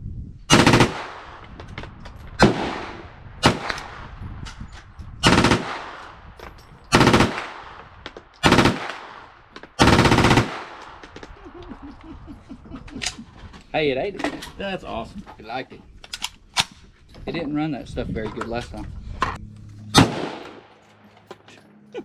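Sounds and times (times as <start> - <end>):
rapid gunshots: 0.5 - 1.3, 5.2 - 6.0, 6.9 - 7.8, 8.4 - 9.2, 9.8 - 10.8.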